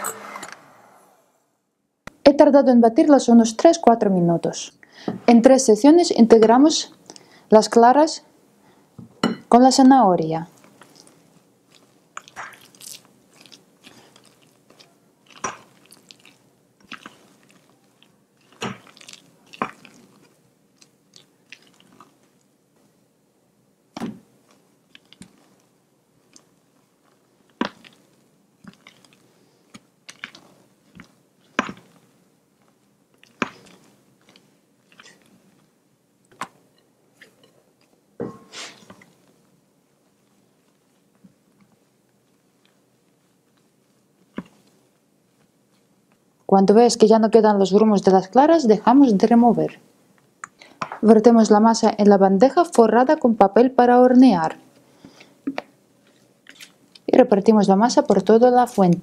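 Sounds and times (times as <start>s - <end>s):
wet batter squelching: 10.5s - 23.0s, 23.9s - 37.9s, 40.0s - 46.5s.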